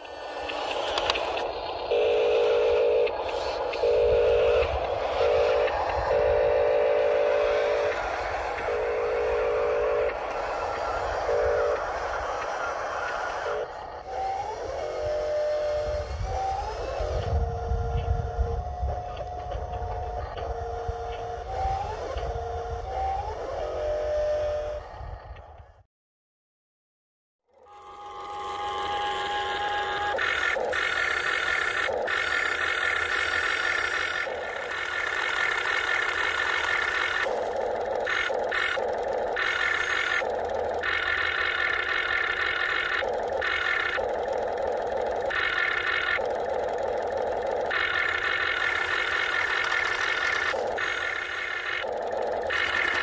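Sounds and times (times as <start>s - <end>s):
low engine rumble: 0.0s - 25.8s, 27.6s - 53.0s
electronic horn-like tones: 1.9s - 10.4s, 11.2s - 12.0s, 27.6s - 51.8s.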